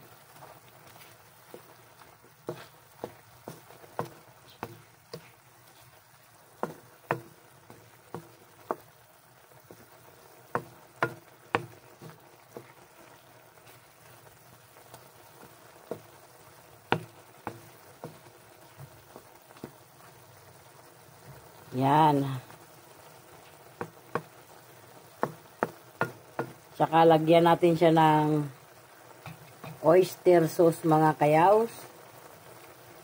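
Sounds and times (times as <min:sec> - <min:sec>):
faint sauce simmering: 0:00.0 - 0:33.0
spatula scraping a wok: 0:00.9 - 0:06.0.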